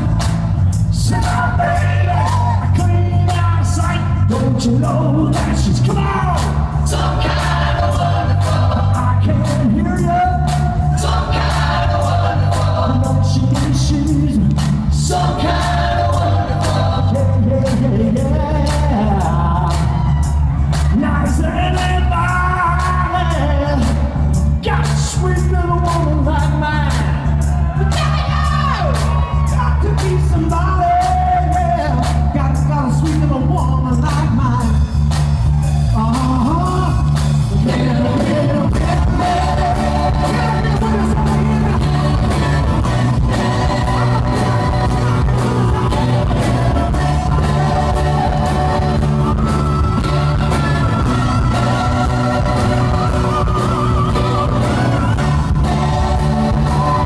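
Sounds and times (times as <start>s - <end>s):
live rock band playing: 0.0s - 57.0s
man singing: 0.9s - 6.7s, 8.8s - 10.8s, 12.9s - 20.1s, 20.9s - 27.2s, 27.9s - 34.8s, 36.0s - 43.8s.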